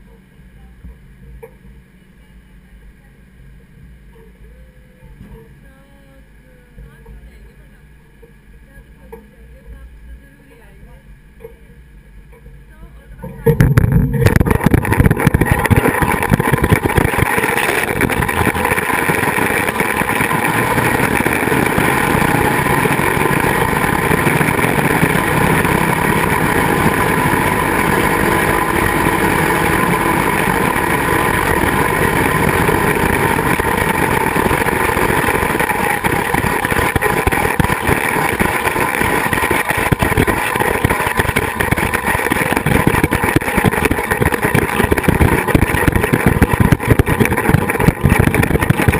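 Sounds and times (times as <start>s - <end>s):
wind buffeting microphone: 13.5s - 48.9s
zipline pulleys whirring: 14.3s - 48.9s.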